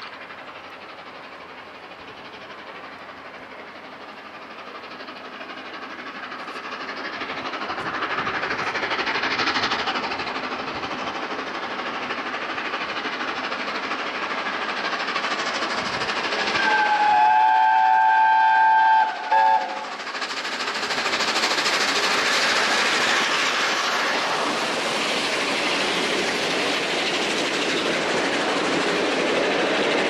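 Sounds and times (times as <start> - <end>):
train wheels rushing on rail: 0.0 - 30.0
steam locomotive whistle: 16.5 - 20.0.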